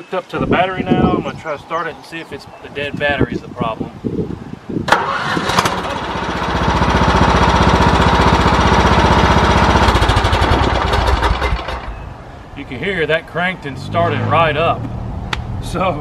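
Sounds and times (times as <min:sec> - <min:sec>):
lawn mower engine cranking: 0:04.9 - 0:12.0
lawn mower engine running: 0:04.9 - 0:12.0.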